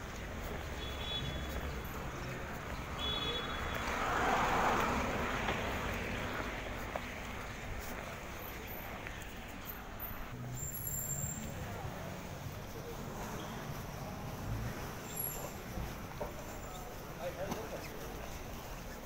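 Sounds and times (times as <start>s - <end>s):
road traffic hum: 0.0s - 19.0s
vehicle passing: 0.1s - 17.4s.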